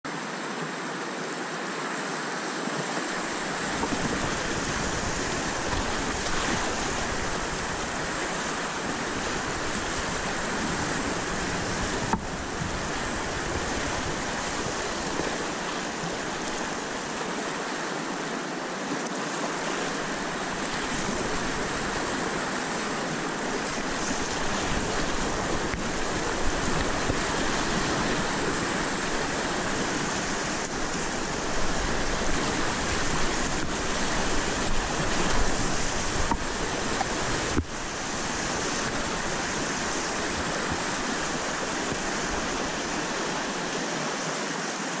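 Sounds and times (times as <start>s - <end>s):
river rapids rushing: 0.1s - 45.0s.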